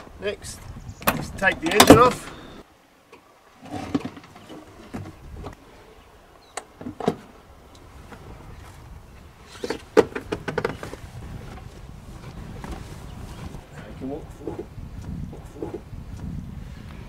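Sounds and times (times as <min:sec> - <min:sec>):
knocks and rattles: 0:09.6 - 0:11.6
clicks and knocks of outboard motor: 0:09.6 - 0:11.7.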